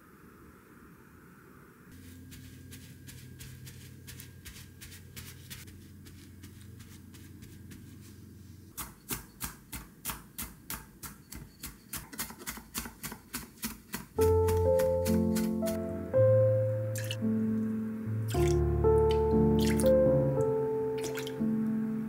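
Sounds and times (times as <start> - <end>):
paper towel patting and rustling: 1.9 - 8.8, 12.8 - 15.8
knife chopping on wooden board: 8.8 - 15.8.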